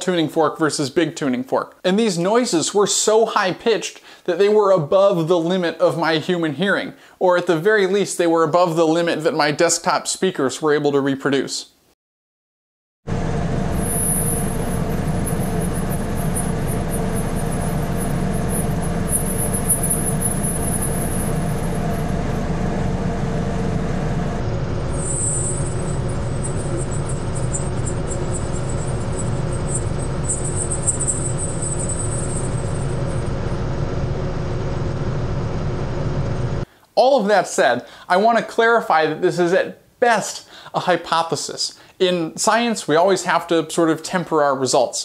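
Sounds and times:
steady hum and hiss: 13.1s - 44.4s.

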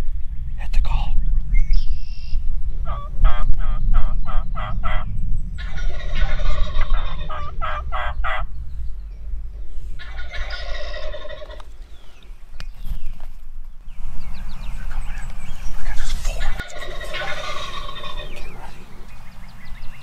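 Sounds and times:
low rumble: 0.0s - 20.0s
turkey gobbling: 2.8s - 8.5s, 10.0s - 11.7s, 16.0s - 18.8s
turkey yelping: 2.9s - 8.5s, 10.0s - 11.6s, 16.3s - 18.7s.

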